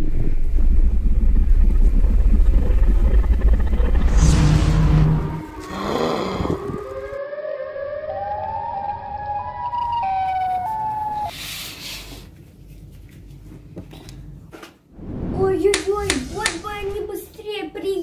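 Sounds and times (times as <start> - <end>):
rush of noise: 2.0 - 5.6, 15.0 - 17.2
siren wail rising in steps: 3.7 - 11.3.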